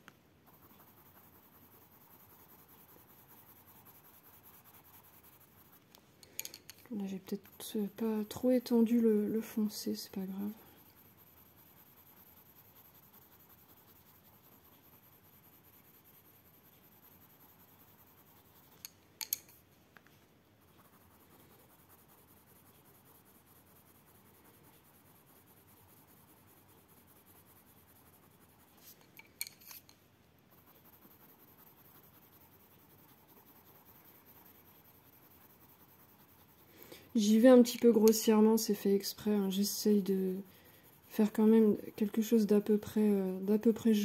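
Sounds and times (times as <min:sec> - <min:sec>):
pencil scratching on paper: 0:00.4 - 0:19.4, 0:20.6 - 0:29.9, 0:30.5 - 0:44.0
sharp clicks of pencils: 0:06.2 - 0:07.0, 0:18.6 - 0:19.6, 0:28.9 - 0:30.0, 0:36.8 - 0:40.1.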